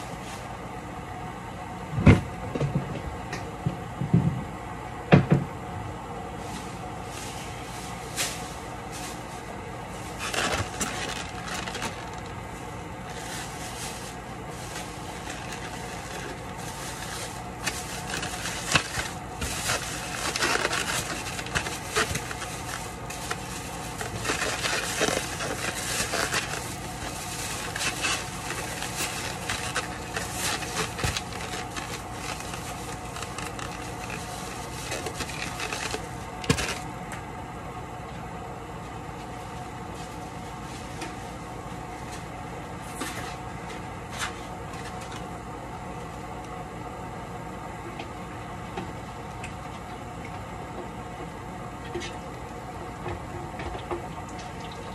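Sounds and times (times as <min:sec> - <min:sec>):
steady low hum: 0:00.0 - 0:54.9
foam boxes scraping: 0:06.4 - 0:36.8
plastic bag rustling: 0:06.4 - 0:36.9, 0:39.3 - 0:45.3.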